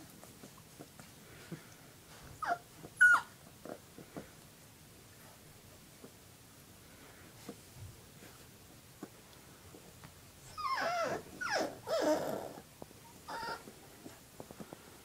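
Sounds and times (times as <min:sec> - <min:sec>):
puppy whining and yelping: 0:02.2 - 0:03.8, 0:10.4 - 0:14.1.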